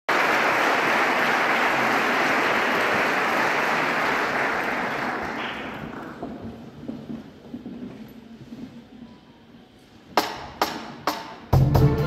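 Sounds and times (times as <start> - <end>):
audience applauding: 0.1 - 6.3.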